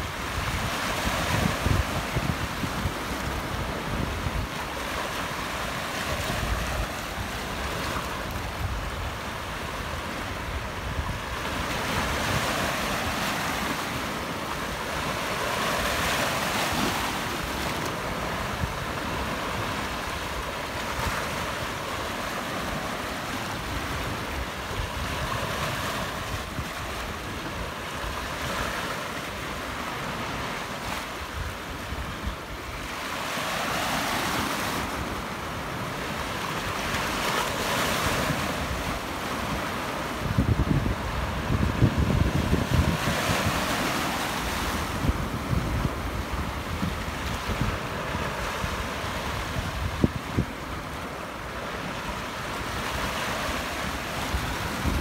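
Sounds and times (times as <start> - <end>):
wind buffeting microphone: 0.0 - 4.6, 40.2 - 50.6, 54.1 - 55.0.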